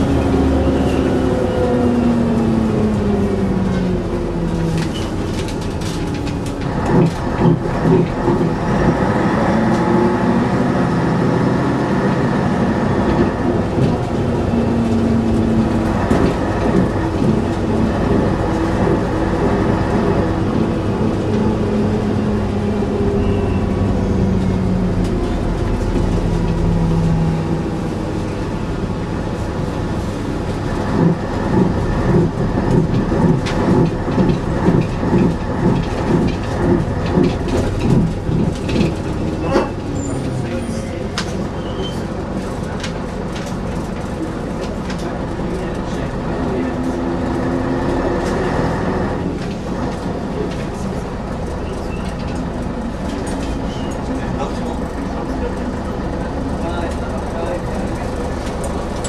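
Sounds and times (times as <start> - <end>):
bus body rattling: 0.0 - 59.0
bus engine running: 0.0 - 59.0.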